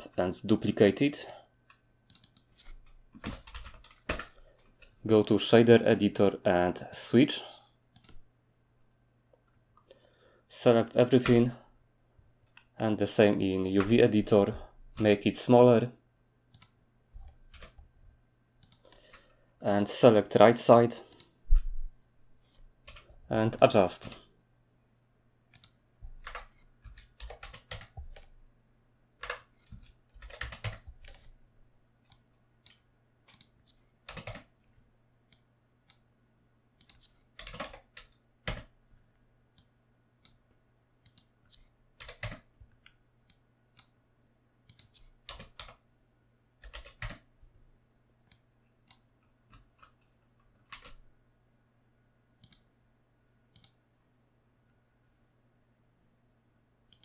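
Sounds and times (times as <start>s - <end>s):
faint steady hum: 0.0s - 57.0s
keyboard and mouse clicking: 1.7s - 5.0s, 7.9s - 8.2s, 13.8s - 14.0s, 16.5s - 17.8s, 18.6s - 19.2s, 25.5s - 28.3s, 29.2s - 31.3s, 32.0s - 34.6s, 36.8s - 38.8s, 41.0s - 44.0s, 44.6s - 45.8s, 46.6s - 47.3s, 48.3s - 51.0s, 52.4s - 52.7s, 53.5s - 53.8s.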